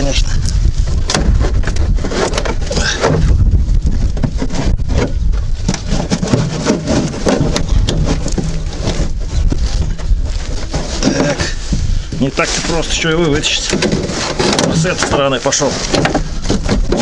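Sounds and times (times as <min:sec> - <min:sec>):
plastic liner scraping and crackling: 0:00.0 - 0:17.0
wind rumble on microphone: 0:00.0 - 0:17.0.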